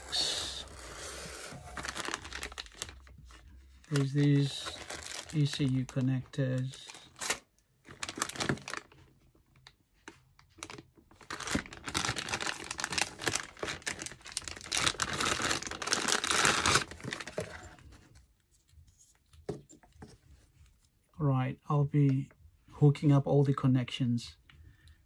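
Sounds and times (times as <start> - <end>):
plastic bag crinkling and tearing: 0.2 - 9.1, 10.6 - 17.7
plastic bag rustling: 1.4 - 9.1, 10.6 - 18.0.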